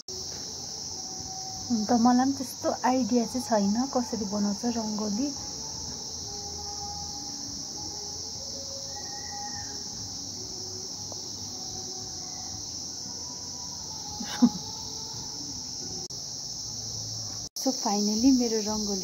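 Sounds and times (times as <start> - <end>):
high-pitched insect chirring: 0.0 - 19.0.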